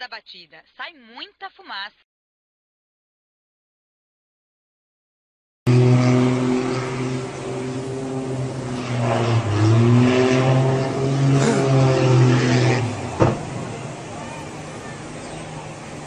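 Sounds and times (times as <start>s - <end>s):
propeller plane engine droning: 5.7s - 16.0s
sharp bang hitting water: 12.5s - 13.8s.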